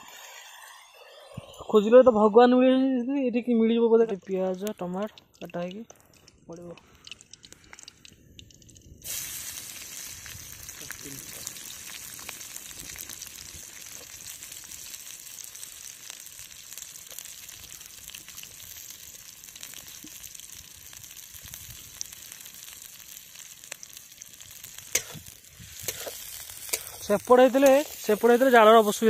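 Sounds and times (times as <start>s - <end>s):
crackles: 3.9s - 29.0s
onions sizzling in hot oil: 9.0s - 29.0s.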